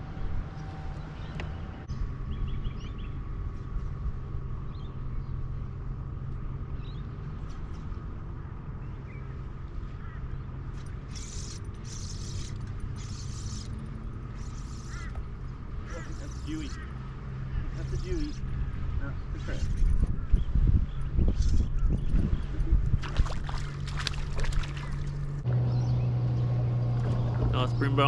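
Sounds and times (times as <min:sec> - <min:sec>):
electric trolling motor hum: 0:10.7 - 0:18.8.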